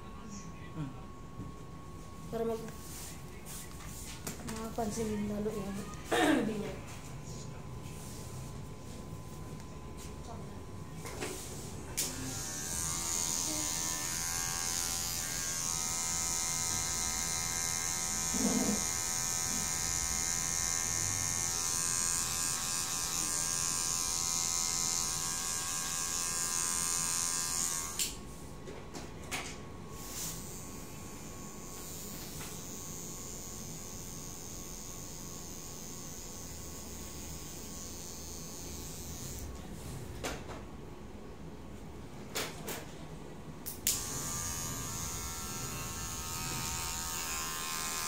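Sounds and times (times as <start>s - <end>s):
electric hair clippers buzzing: 11.9s - 28.2s, 29.9s - 39.6s, 43.6s - 48.0s.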